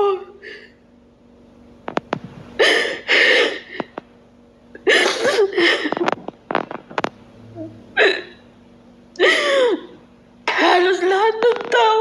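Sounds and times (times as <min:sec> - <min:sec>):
woman sobbing: 0:02.6 - 0:03.9, 0:04.7 - 0:06.1, 0:07.6 - 0:08.4, 0:09.2 - 0:10.0.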